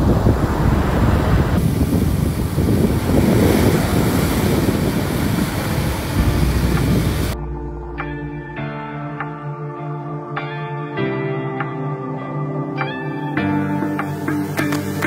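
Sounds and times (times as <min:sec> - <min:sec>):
waves breaking on beach: 0:00.0 - 0:07.4
wind buffeting microphone: 0:00.0 - 0:08.2.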